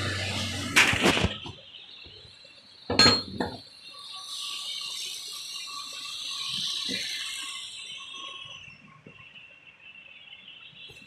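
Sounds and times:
metallic clinks: 0:02.9 - 0:03.6.

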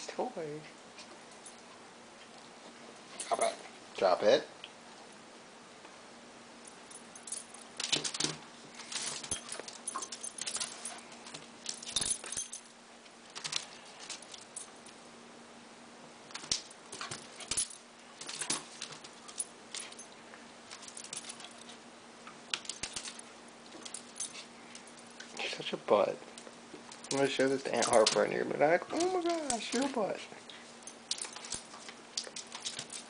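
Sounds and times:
collar tags jingling: 0:06.6 - 0:15.0, 0:16.3 - 0:21.8, 0:22.5 - 0:25.6, 0:26.2 - 0:33.0.

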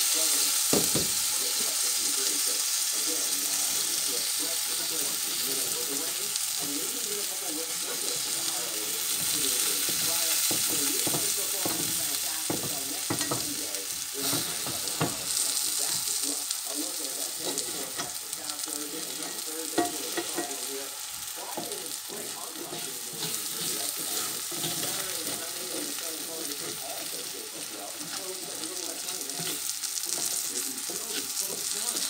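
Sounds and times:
food sizzling in a skillet: 0:00.0 - 0:32.0
spatula tapping and scraping pan: 0:09.0 - 0:16.2, 0:19.0 - 0:20.7, 0:21.4 - 0:27.1, 0:28.0 - 0:32.0.

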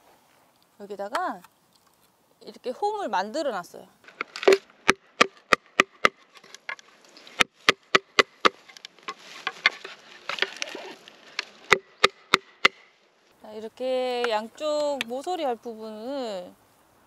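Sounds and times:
hollow knocks of bamboo: 0:04.1 - 0:12.9.

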